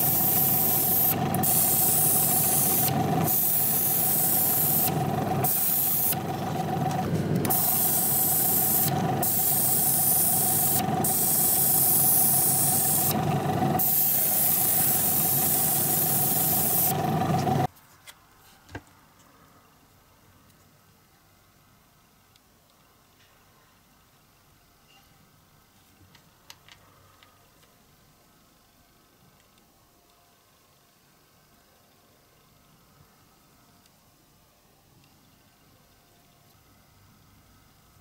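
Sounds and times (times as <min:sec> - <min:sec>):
paint spray gun hissing: 0:00.0 - 0:17.7.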